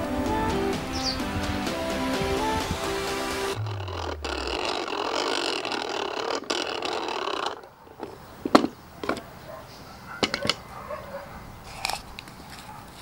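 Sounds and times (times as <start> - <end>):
steady rushing noise: 1.3 - 5.7.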